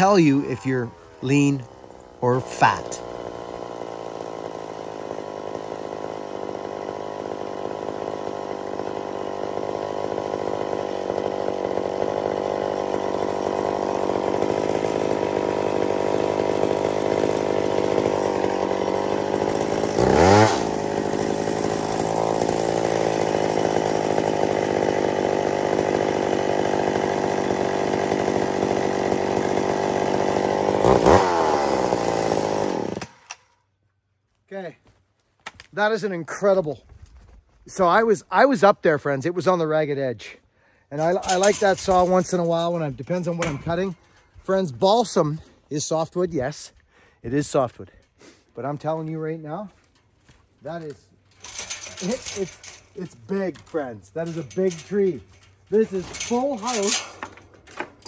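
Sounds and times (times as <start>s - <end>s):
chainsaw cutting log: 0.0s - 33.6s, 40.9s - 46.1s, 50.7s - 58.0s.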